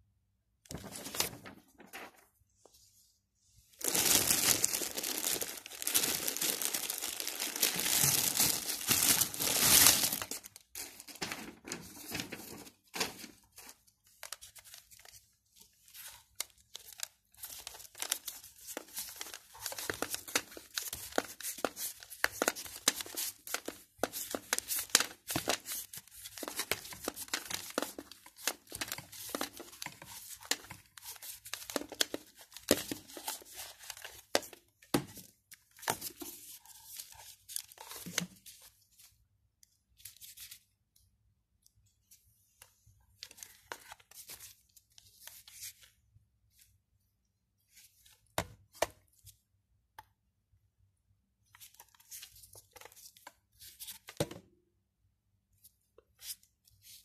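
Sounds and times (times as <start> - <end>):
plastic bag crinkling: 3.8 - 12.6.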